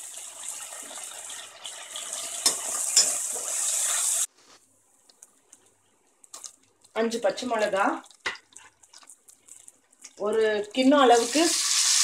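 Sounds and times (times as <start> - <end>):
onions sizzling in oil: 0.0 - 4.3, 10.8 - 12.0
spatula clinking on metal: 2.4 - 3.4.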